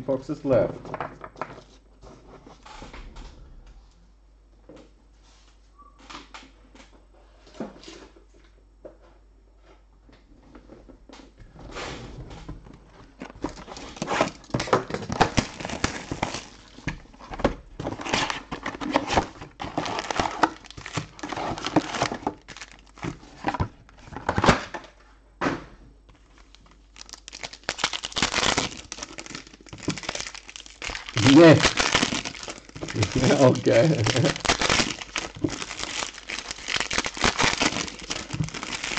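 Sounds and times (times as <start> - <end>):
plastic wrapping crinkling: 13.0 - 24.5, 26.2 - 38.9.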